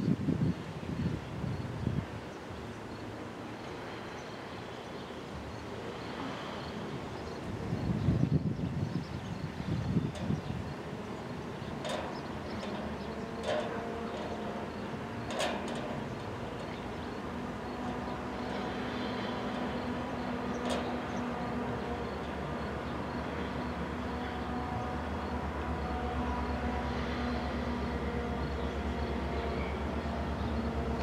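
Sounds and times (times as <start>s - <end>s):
diesel locomotive engine drone: 0.7s - 31.0s.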